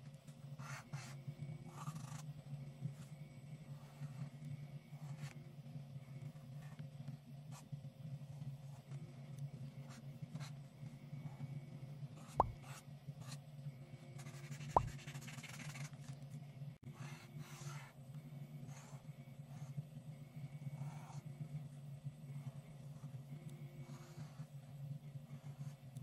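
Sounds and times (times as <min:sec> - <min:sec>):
low steady hum: 0:00.0 - 0:26.0
marker scratching on paper: 0:00.6 - 0:02.2, 0:12.2 - 0:13.4, 0:14.2 - 0:15.9
soft thumps: 0:12.4 - 0:12.6.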